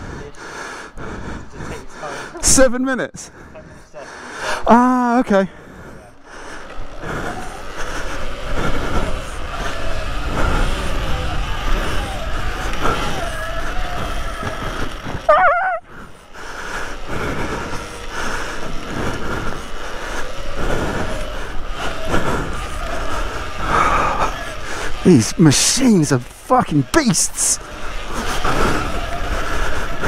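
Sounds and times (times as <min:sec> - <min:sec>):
electric motorbike motor whine: 0:04.8 - 0:26.9, 0:27.6 - 0:30.0
high wavering tone: 0:15.3 - 0:15.8.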